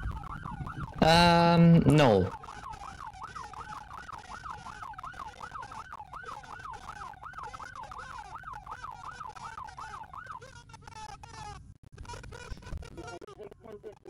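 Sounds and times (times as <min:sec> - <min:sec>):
police siren yelping: 0:00.0 - 0:10.9.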